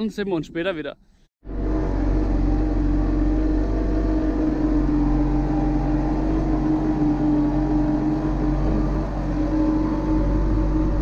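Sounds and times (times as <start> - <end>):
tractor engine running: 1.4 - 11.0.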